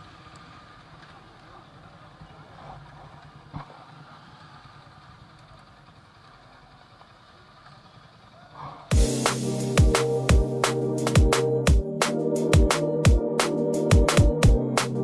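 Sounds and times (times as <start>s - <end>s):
motorcycles idling: 0.0s - 13.2s
electronic music with thumping beat: 8.9s - 15.0s.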